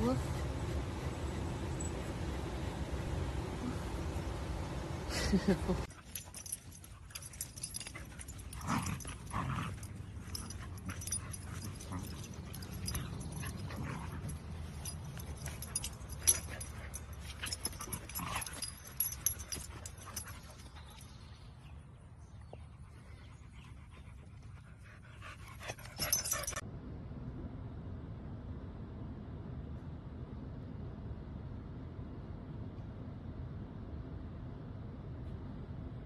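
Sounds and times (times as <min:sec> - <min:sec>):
dogs yipping and barking: 0:05.8 - 0:21.2, 0:25.2 - 0:26.6.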